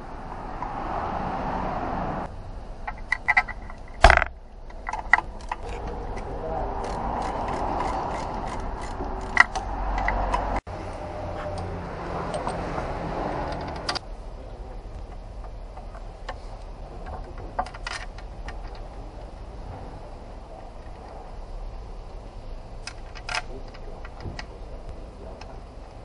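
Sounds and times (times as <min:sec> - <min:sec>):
hand tools clicking and clinking: 0:02.8 - 0:10.6, 0:11.4 - 0:12.8, 0:13.4 - 0:14.0, 0:17.0 - 0:18.9, 0:22.8 - 0:24.5
ratchet clicking: 0:02.8 - 0:10.6
low workshop background: 0:02.8 - 0:26.0.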